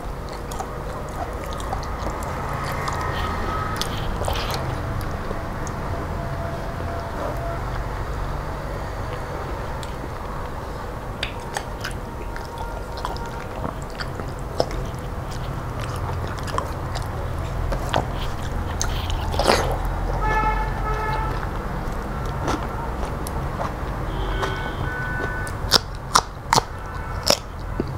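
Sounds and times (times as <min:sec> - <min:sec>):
low steady hum: 0:00.0 - 0:27.9
man chewing food: 0:00.0 - 0:27.9
vehicle horn toot: 0:03.0 - 0:04.1, 0:05.4 - 0:08.0, 0:20.2 - 0:21.5, 0:24.0 - 0:25.7.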